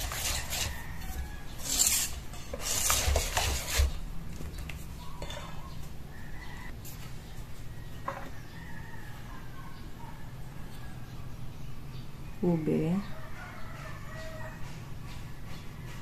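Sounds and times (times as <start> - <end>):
whisk scraping metal bowl: 0.0 - 4.0.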